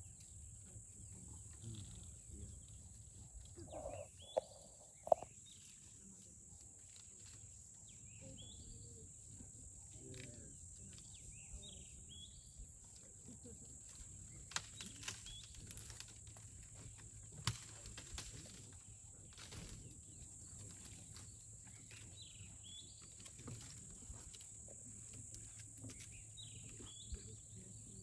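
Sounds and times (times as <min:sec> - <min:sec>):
high insect drone: 0:00.0 - 0:06.2
bird chirps: 0:03.6 - 0:05.8
twigs snapping and crackling: 0:14.5 - 0:19.8.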